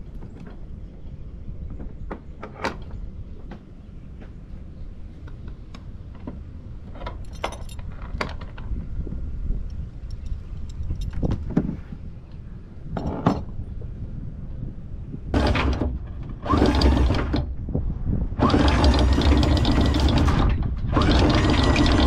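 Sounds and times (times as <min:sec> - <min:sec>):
anchor chain rattling: 0:07.1 - 0:08.4, 0:10.2 - 0:11.3
windlass motor whining: 0:15.2 - 0:22.0.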